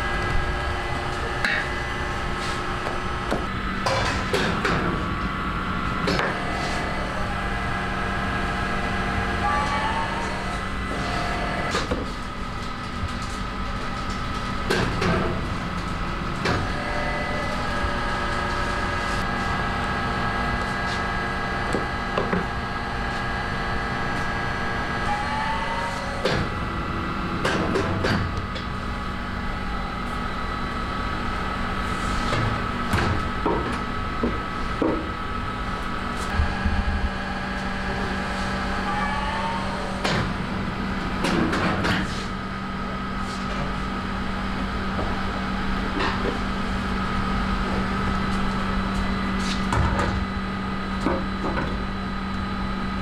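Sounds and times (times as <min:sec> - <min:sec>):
oven machine hum: 0:00.0 - 0:53.0
rising machine whine: 0:23.6 - 0:27.4, 0:36.3 - 0:40.8.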